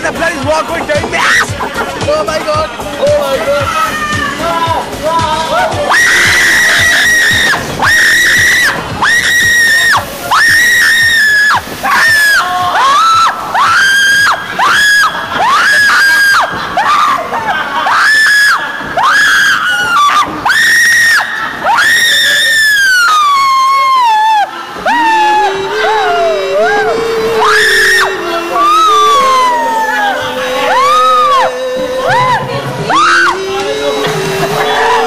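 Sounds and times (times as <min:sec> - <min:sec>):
person screaming: 0:24.9 - 0:35.0.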